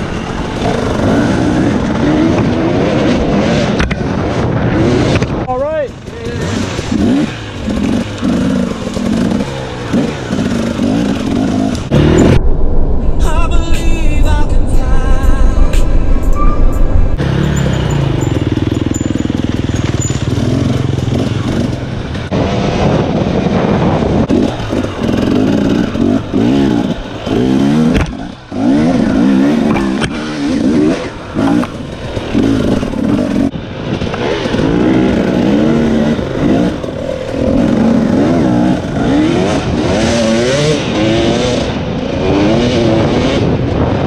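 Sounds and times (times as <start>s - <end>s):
dirt bike engine revving: 0.0s - 5.4s, 6.0s - 12.5s, 15.0s - 43.6s.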